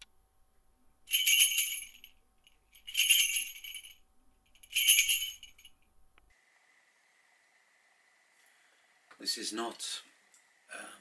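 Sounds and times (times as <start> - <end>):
small bells jingling: 1.1 - 5.9.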